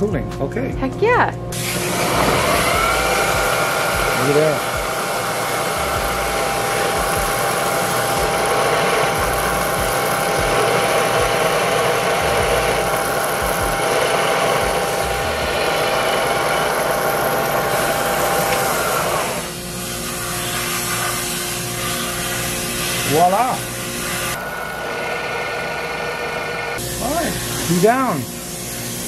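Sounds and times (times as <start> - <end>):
milling machine drilling into metal: 1.6 - 19.5.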